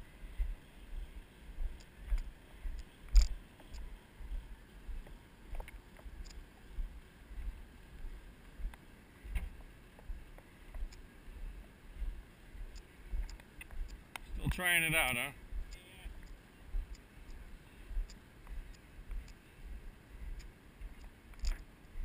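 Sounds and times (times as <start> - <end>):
light clicks: 1.8 - 3.9, 18.0 - 19.4, 20.3 - 21.7.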